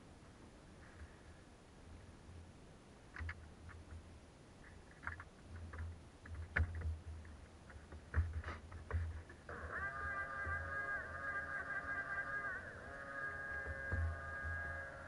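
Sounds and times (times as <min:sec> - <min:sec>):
faint small clicks and knocks: 0:03.1 - 0:09.5
low bumps: 0:03.2 - 0:15.0.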